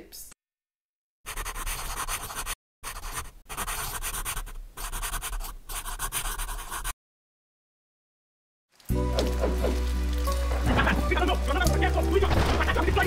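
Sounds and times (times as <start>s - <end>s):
marker scratching on paper: 1.3s - 7.0s.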